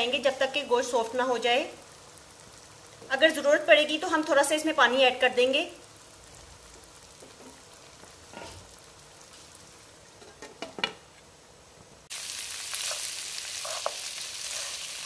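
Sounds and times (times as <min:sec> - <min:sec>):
meat frying in oil: 0:00.0 - 0:10.4, 0:12.1 - 0:15.0
meat sizzling in wok: 0:00.0 - 0:10.7, 0:12.0 - 0:15.0.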